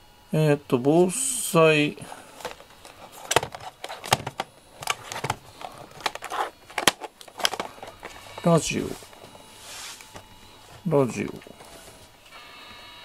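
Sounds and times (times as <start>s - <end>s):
rustling: 2.3s - 12.3s.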